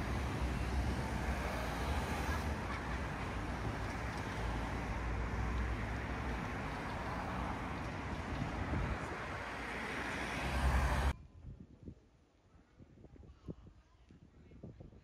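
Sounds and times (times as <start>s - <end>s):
cars driving past: 0.0s - 11.2s
low road rumble: 0.0s - 11.5s.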